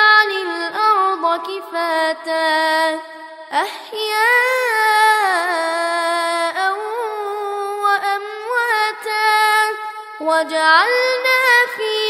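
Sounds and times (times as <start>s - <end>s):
boy chanting melodically: 0.0s - 12.0s.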